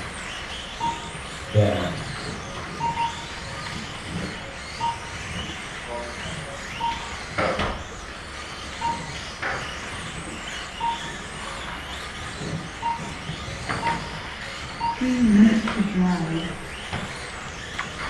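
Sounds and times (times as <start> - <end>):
small electric motors whining: 0.0 - 18.0
short electronic beep: 0.8 - 1.7, 2.8 - 3.3, 4.8 - 5.2, 6.7 - 7.2, 8.8 - 9.2, 10.8 - 11.2, 12.8 - 13.2, 13.8 - 14.2, 14.8 - 15.5.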